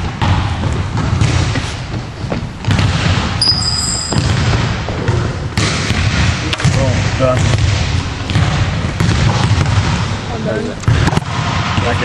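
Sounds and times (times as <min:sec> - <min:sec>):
volleyballs thudding on gym floor: 0:00.0 - 0:12.0
high squeak: 0:03.4 - 0:04.2.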